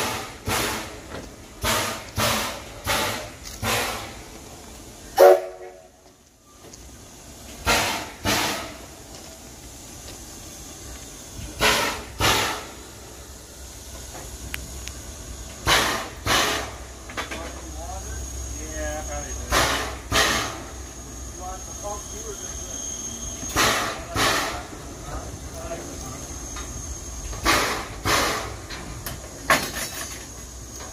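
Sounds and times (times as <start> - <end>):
steam locomotive chuffing: 0.0 - 30.9
loud whistle blast: 5.2 - 5.8.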